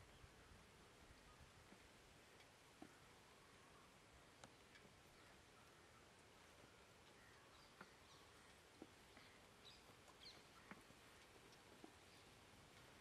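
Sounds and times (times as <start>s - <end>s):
soft clicks: 2.4s - 3.0s, 7.0s - 12.1s
bird chirps: 5.1s - 12.9s.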